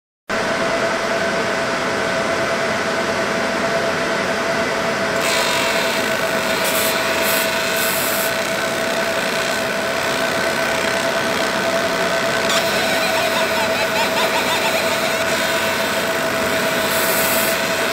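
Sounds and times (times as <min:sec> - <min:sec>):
laser engraver humming: 0:05.1 - 0:17.9
laser burning hiss: 0:05.2 - 0:11.0, 0:12.4 - 0:17.9.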